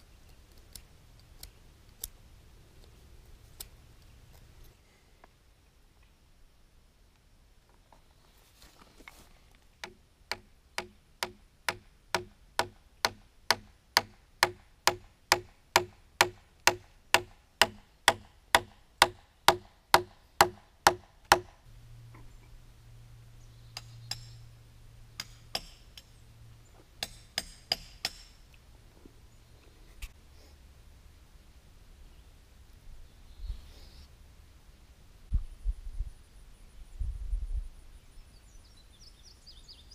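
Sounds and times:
wooden mallet striking timber: 0:09.8 - 0:21.6, 0:27.0 - 0:28.4
low hum: 0:21.6 - 0:27.0.

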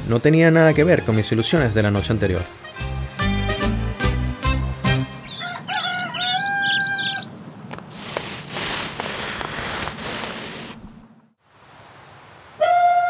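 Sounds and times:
rooster crowing: 0:05.3 - 0:07.3, 0:12.6 - 0:13.0
hiss-like background noise: 0:07.9 - 0:13.0.

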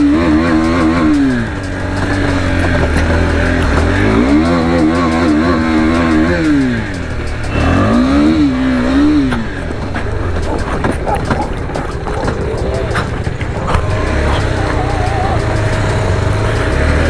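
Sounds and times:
motorcycle engine revving: 0:00.0 - 0:17.0.

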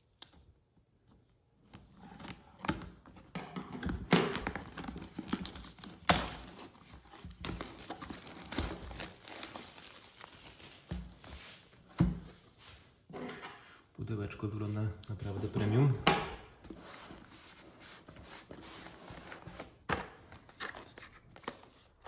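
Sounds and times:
plastic wrap crinkling: 0:04.2 - 0:11.3.

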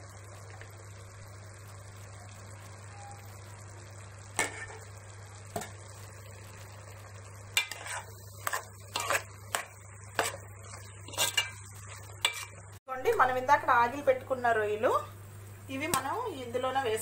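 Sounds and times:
spoon scraping metal pot: 0:07.5 - 0:12.6.

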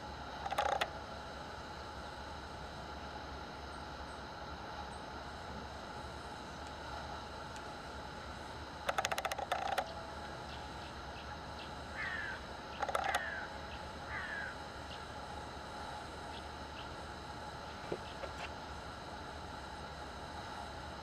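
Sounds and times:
sharp clicks: 0:00.4 - 0:00.9, 0:08.9 - 0:09.9, 0:12.8 - 0:13.3
bird calling: 0:10.5 - 0:15.1.

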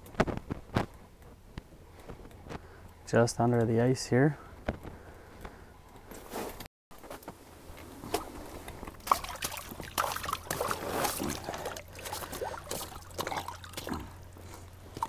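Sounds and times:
water splashing and dripping: 0:08.8 - 0:15.0.

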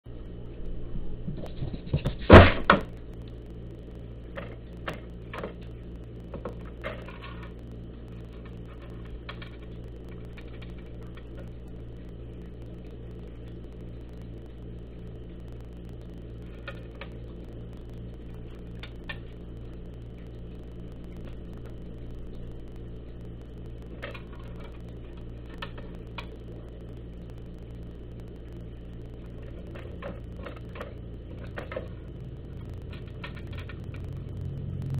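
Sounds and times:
steady low hum: 0:00.0 - 0:34.9
cat crunching dry kibble: 0:29.4 - 0:32.0.

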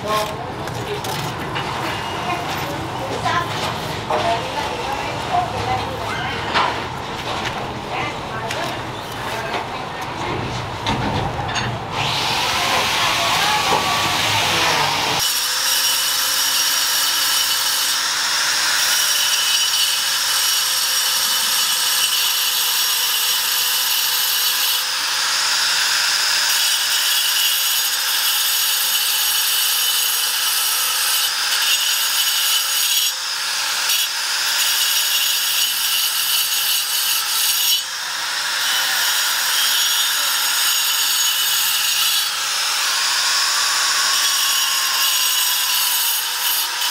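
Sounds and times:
angle grinder cutting stone: 0:11.6 - 0:46.9.

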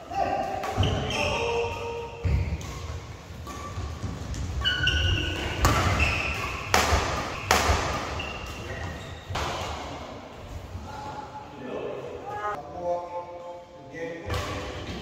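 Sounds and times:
shoes squeaking on court: 0:00.7 - 0:09.4
rackets striking shuttlecock: 0:02.3 - 0:08.6.

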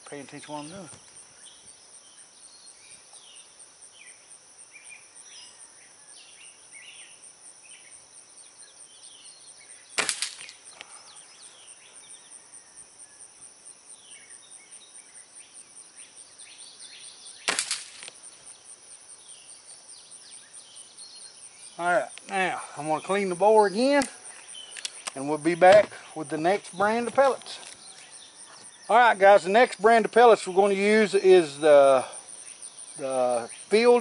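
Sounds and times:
air rifle shots: 0:10.0 - 0:10.7, 0:17.4 - 0:18.1.

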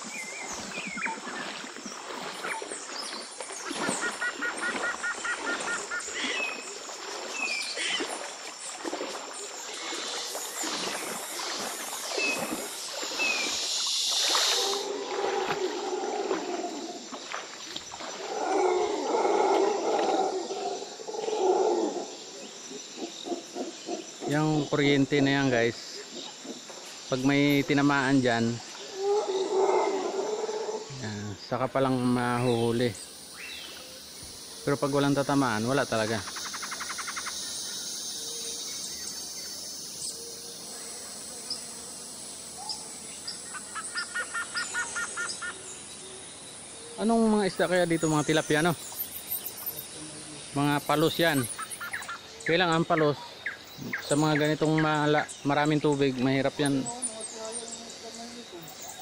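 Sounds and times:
bird calling: 0:00.0 - 0:24.4, 0:32.3 - 0:41.8, 0:42.4 - 0:46.2, 0:46.8 - 0:55.3
insects buzzing: 0:00.0 - 0:59.0.

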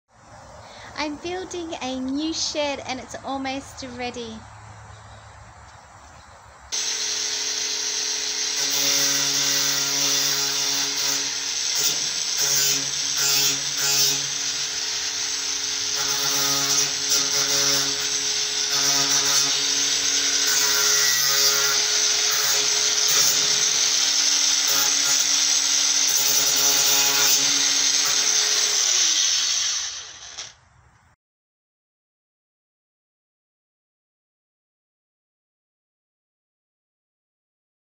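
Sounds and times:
angle grinder grinding metal: 0:06.8 - 0:30.6.

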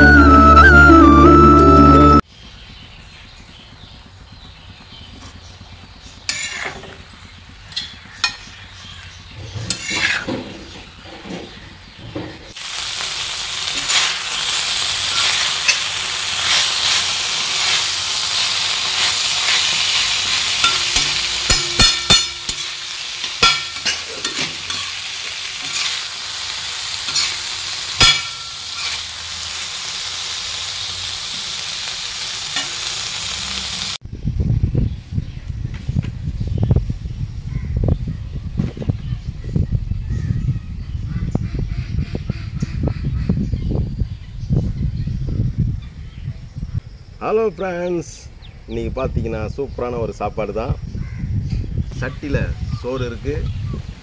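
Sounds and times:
spatula scraping a pan: 0:06.3 - 0:07.0, 0:09.4 - 0:11.6, 0:13.7 - 0:26.1, 0:26.9 - 0:29.1
meat sizzling in oil: 0:12.6 - 0:34.0.

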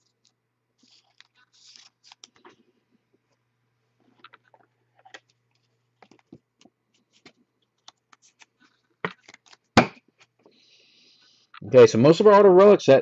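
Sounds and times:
trading card rustling: 0:00.0 - 0:02.7, 0:04.2 - 0:10.4.

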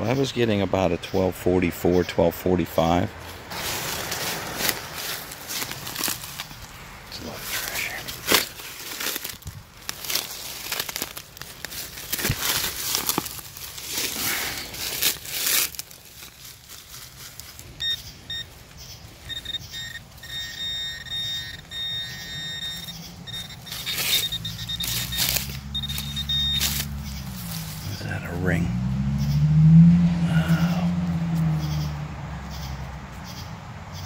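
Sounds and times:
digging in soil: 0:03.2 - 0:28.7
metal detector high tone: 0:17.8 - 0:18.5, 0:19.2 - 0:27.0.

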